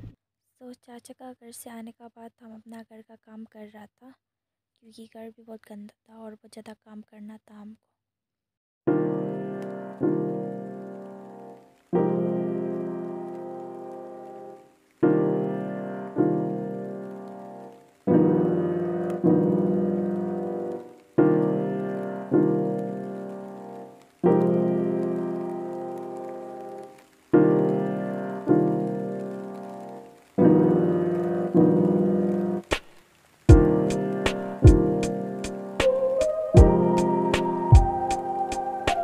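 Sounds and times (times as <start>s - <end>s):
slow piano chords: 8.9s - 32.8s, 33.5s - 39.0s.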